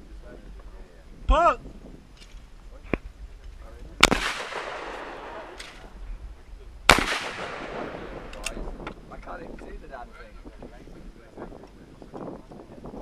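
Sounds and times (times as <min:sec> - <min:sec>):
shotgun shots echoing: 0:04.0 - 0:06.0, 0:06.9 - 0:08.6.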